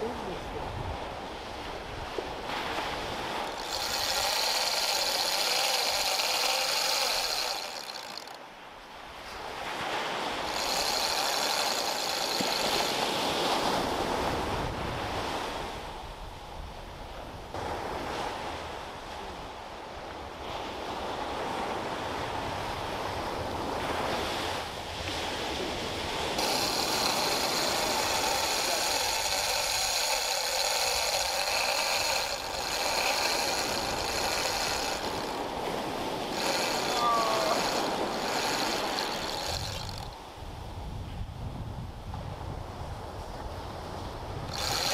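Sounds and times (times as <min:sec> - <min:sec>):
surf washing: 0:00.0 - 0:16.7, 0:17.5 - 0:41.0
fishing reel drag buzzing: 0:02.2 - 0:08.5, 0:09.2 - 0:14.6, 0:26.0 - 0:40.4, 0:44.4 - 0:44.9.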